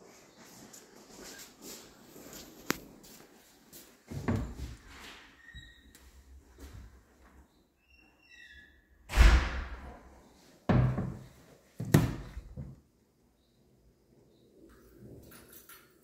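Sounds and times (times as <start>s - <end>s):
cabinet doors thudding shut: 10.7s - 11.2s, 11.8s - 12.8s.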